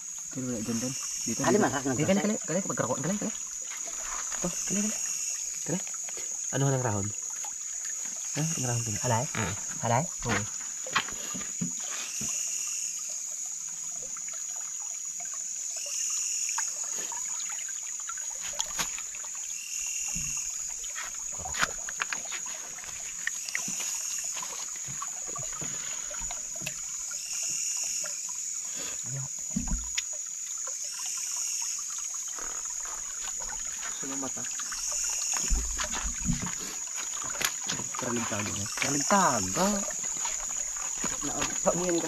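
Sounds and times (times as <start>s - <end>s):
insects buzzing: 0.0s - 42.0s
short insect call: 0.0s - 42.0s
small splashes in stream: 0.0s - 42.0s
clicks and knocks on stones: 21.5s - 23.4s.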